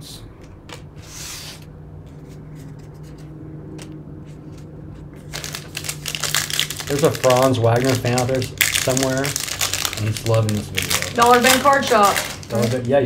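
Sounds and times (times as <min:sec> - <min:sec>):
low hum: 0:00.0 - 0:07.0
foil wrapper crinkling: 0:05.2 - 0:13.0.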